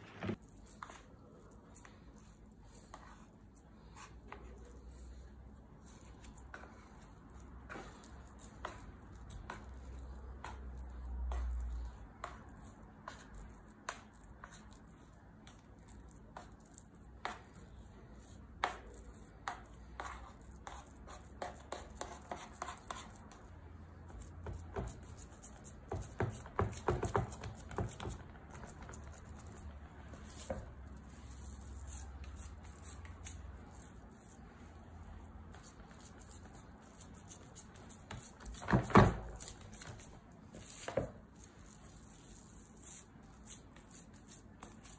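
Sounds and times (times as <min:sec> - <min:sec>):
hands pressing dough: 0:18.3 - 0:44.9.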